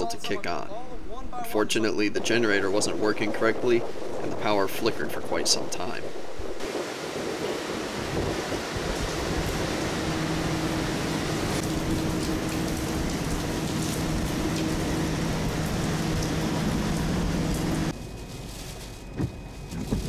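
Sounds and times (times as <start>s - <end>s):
strong wind: 0.9s - 18.2s, 18.8s - 20.0s
muffled storm inside car: 1.6s - 20.0s
heavy rain: 6.1s - 17.9s
diesel generator humming: 6.7s - 20.0s.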